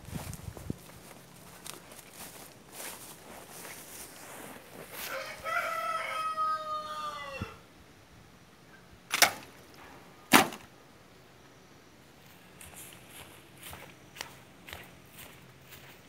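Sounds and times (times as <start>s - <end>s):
rooster crowing: 4.9s - 7.7s
sharp cracks: 9.1s - 9.6s, 10.3s - 10.7s.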